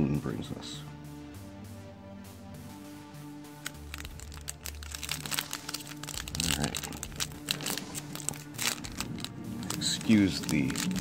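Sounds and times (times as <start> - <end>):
foil pack crinkling and tearing: 3.6 - 11.0.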